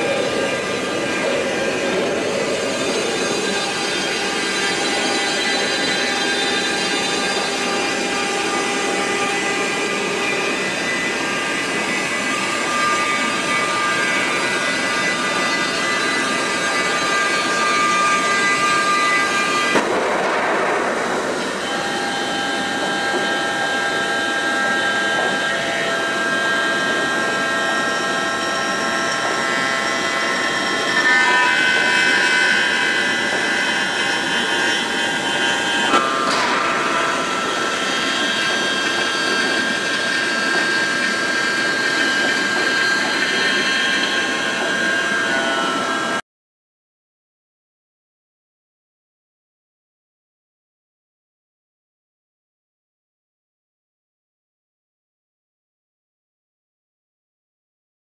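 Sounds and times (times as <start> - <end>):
milling machine whine: 0.0 - 19.9, 20.9 - 46.2.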